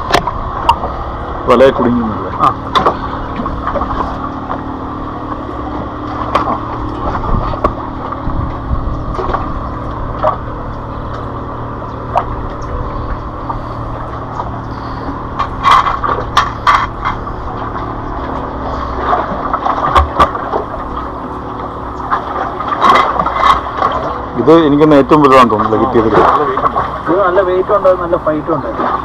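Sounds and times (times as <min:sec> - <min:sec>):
steady outdoor rumble: 0:00.0 - 0:29.0
knocks and scrapes against rock: 0:14.4 - 0:17.8.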